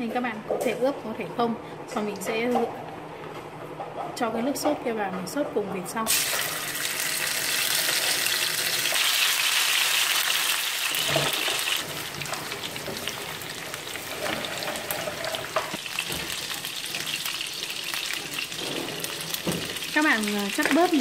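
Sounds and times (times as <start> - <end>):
meat sizzling in frying pan: 6.1 - 21.0.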